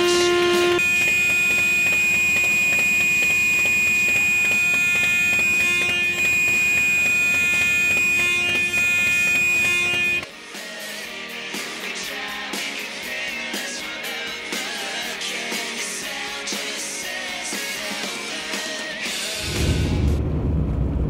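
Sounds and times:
high-pitched held tone: 0.0 - 10.2
sustained music chord: 0.0 - 10.2.

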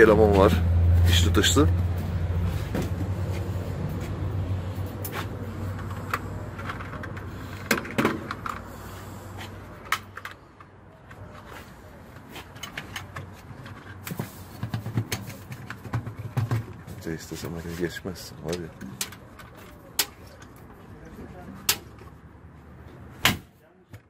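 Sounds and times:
clicks and knocks of parts handled: 4.8 - 20.8.

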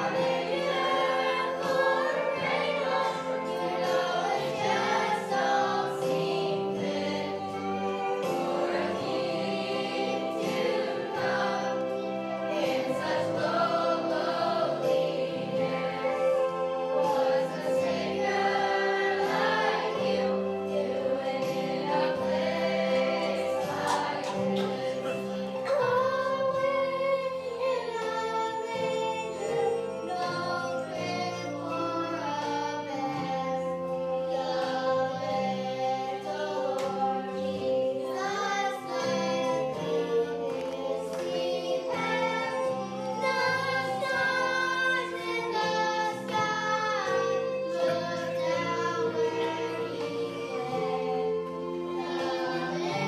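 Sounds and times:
children singing: 0.0 - 53.0
instrumental accompaniment: 0.0 - 53.0.

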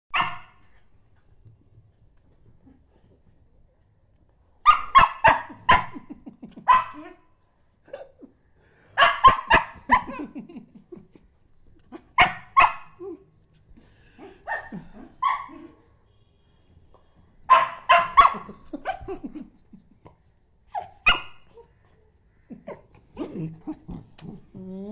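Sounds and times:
small dog barking sharply: 0.1 - 0.6, 4.7 - 6.0, 9.0 - 10.1, 17.5 - 18.5.

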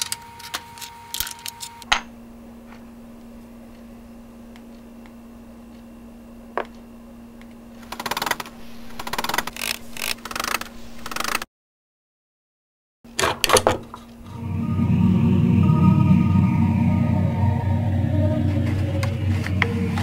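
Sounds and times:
eerie music: 14.2 - 20.0.

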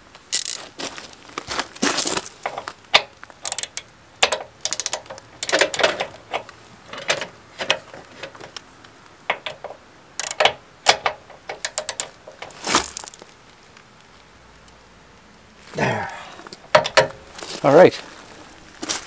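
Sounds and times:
ratchet wrench clicking: 0.3 - 0.6, 3.0 - 7.8, 9.3 - 12.6.

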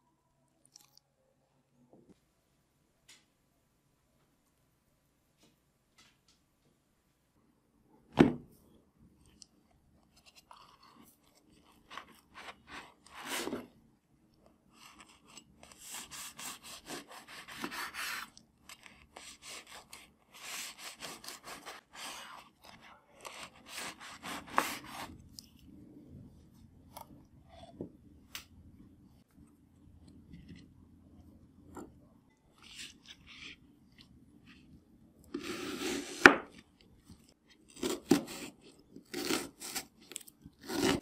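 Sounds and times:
knife sawing crusty bread: 14.9 - 25.1, 37.8 - 39.9, 40.6 - 41.0.

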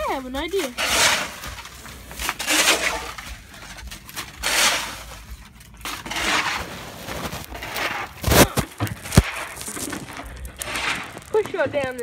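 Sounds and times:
snow crunching and scraping: 6.0 - 12.0.

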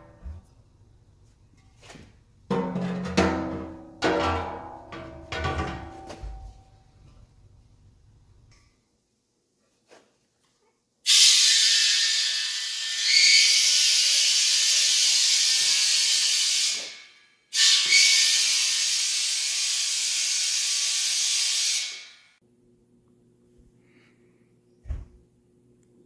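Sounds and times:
compressed air hissing: 11.1 - 22.2.

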